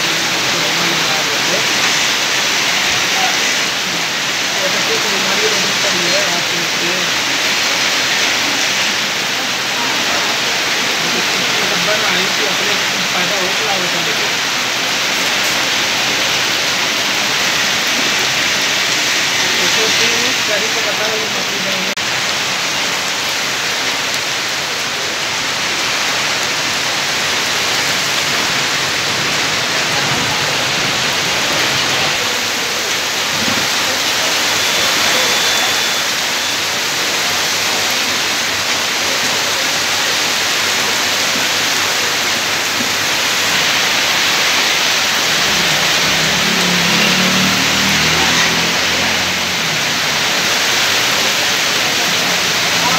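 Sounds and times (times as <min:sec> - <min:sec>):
heavy rain on pavement: 0:00.0 - 0:52.9.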